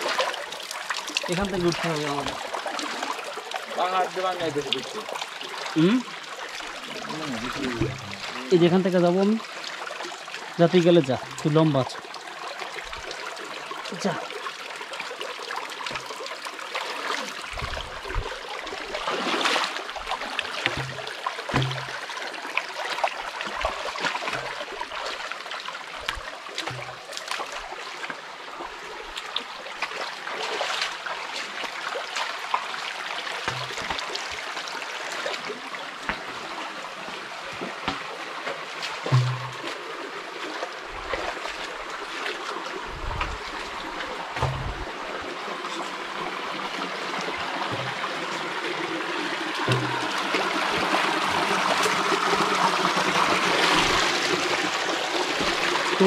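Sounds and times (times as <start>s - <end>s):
stream splashing over rocks: 0.0s - 56.0s
dull low thuds: 7.8s - 8.3s, 17.6s - 18.4s, 44.3s - 45.1s.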